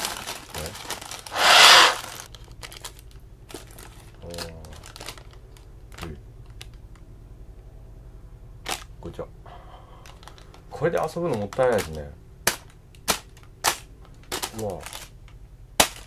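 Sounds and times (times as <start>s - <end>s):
puff of breath blown: 1.3s - 2.1s
paper crinkling and tapping: 2.2s - 7.1s, 10.1s - 16.0s.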